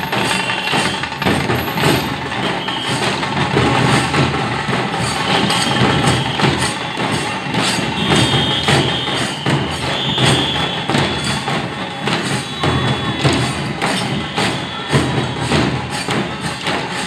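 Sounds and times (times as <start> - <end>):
marching band drums: 0.0 - 17.0
high whistle-like tone: 5.2 - 7.2, 7.9 - 13.2.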